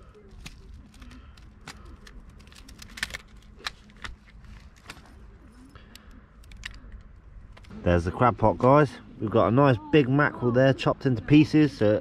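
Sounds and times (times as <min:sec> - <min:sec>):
plastic and string rustling: 0:00.0 - 0:07.7.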